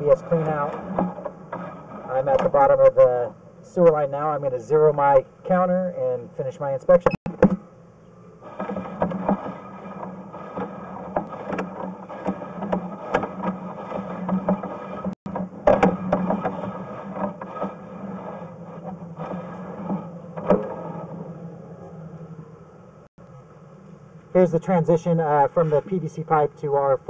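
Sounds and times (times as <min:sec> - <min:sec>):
low hum: 0:00.0 - 0:24.4
cable clicking and rattling: 0:08.5 - 0:21.1.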